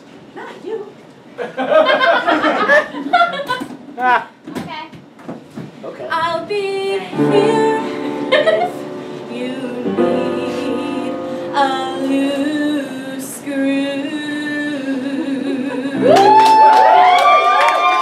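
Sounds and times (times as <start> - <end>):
woman singing with accompaniment: 6.1 - 16.8
audience cheering and whooping: 16.0 - 18.0
audience clapping: 16.1 - 18.0.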